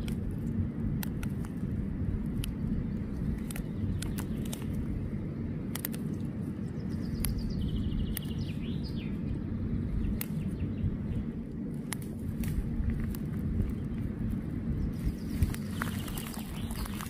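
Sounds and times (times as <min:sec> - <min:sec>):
low rumble: 0:00.0 - 0:17.0
songbird singing: 0:00.0 - 0:17.0
sharp clicks: 0:03.3 - 0:04.8, 0:05.7 - 0:06.3.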